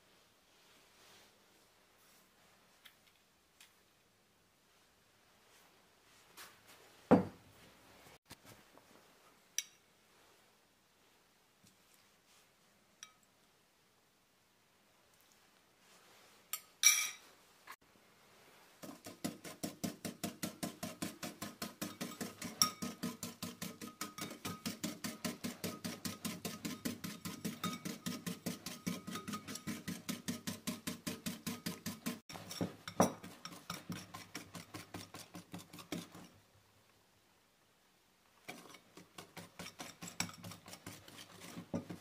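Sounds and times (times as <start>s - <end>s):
whisk beating in ceramic bowl: 18.8s - 36.4s, 38.5s - 42.0s.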